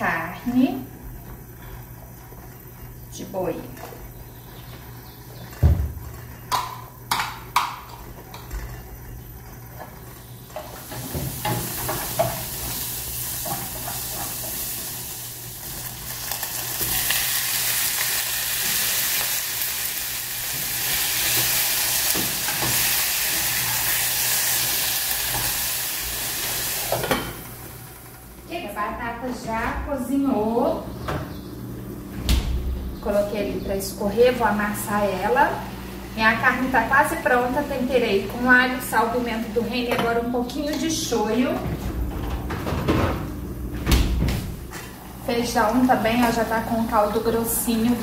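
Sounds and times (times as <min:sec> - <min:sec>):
oil sizzling in a pan: 0:10.3 - 0:28.2.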